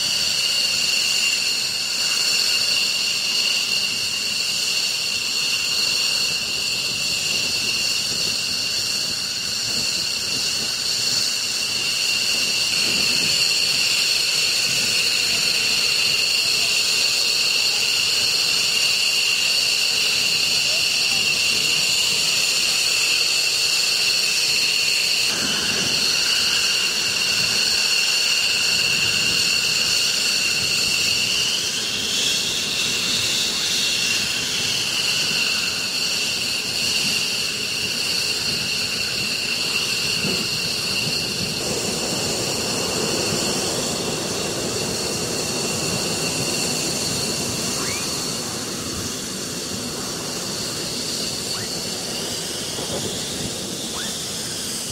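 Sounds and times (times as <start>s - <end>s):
jet engines whining and rumbling: 0.0s - 54.9s.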